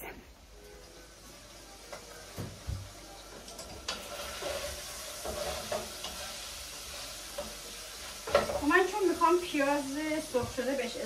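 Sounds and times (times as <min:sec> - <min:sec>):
meat sizzling in a pan: 0:00.5 - 0:11.0
scraping as meat is stirred: 0:03.4 - 0:10.9.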